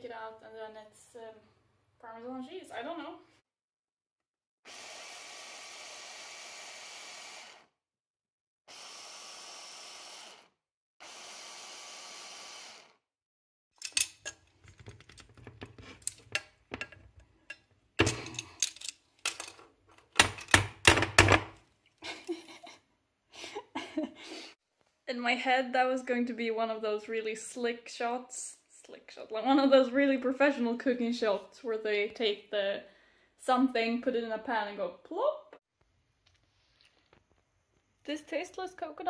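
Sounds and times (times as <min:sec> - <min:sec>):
electric chopper grinding nuts: 0:04.7 - 0:07.8, 0:08.7 - 0:13.0.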